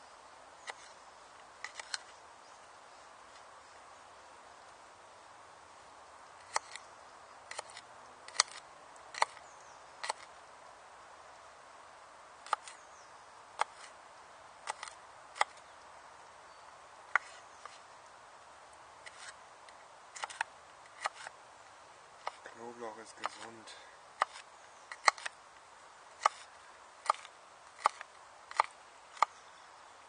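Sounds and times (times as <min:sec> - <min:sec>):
knife chopping on wooden board: 0:23.2 - 0:23.5.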